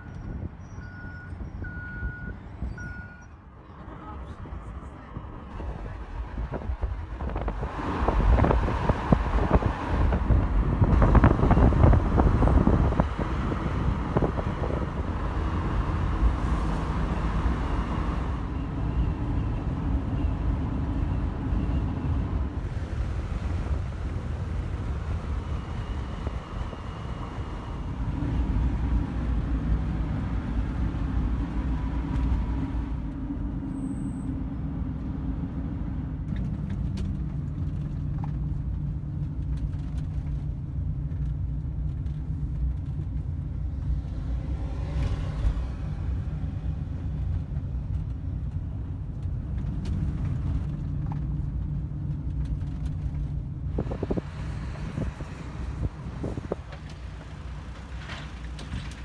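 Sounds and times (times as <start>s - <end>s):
car road and engine noise: 0.0s - 59.0s
gusty rumble: 3.7s - 59.0s.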